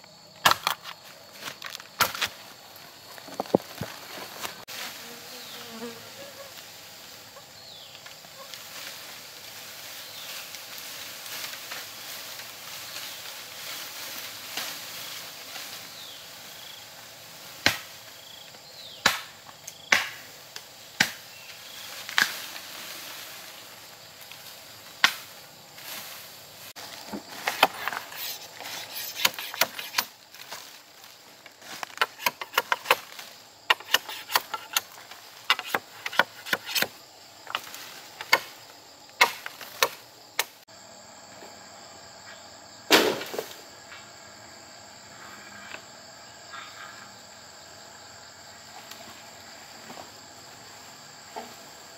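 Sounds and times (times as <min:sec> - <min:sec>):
insects chirring: 0:00.0 - 0:51.9
hand tool chopping: 0:00.4 - 0:01.0, 0:01.6 - 0:02.4, 0:27.3 - 0:30.1, 0:31.7 - 0:38.5, 0:39.2 - 0:40.5.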